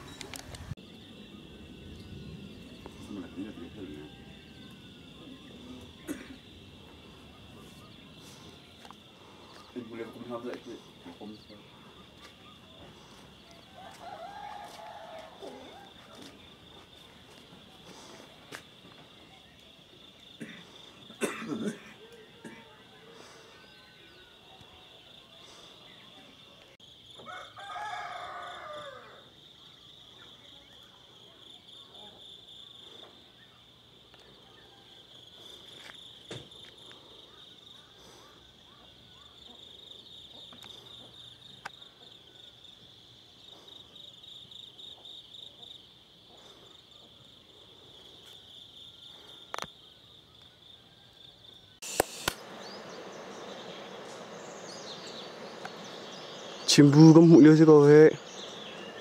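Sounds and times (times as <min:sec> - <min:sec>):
insects trilling: 0:00.0 - 0:59.0
rooster crowing: 0:03.3 - 0:05.6, 0:13.6 - 0:16.3, 0:27.2 - 0:29.4
sharp click: 0:51.8 - 0:52.5
steady hiss: 0:51.8 - 0:59.0.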